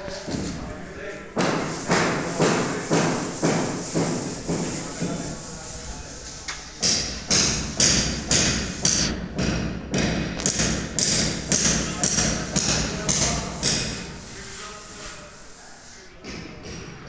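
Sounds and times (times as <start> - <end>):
footsteps on hard floor echoing: 1.4 - 5.5.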